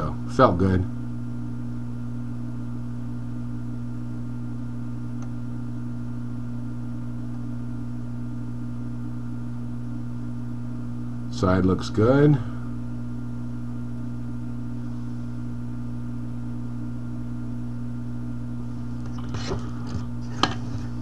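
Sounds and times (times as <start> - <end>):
electrical equipment hum: 0.0 - 21.0.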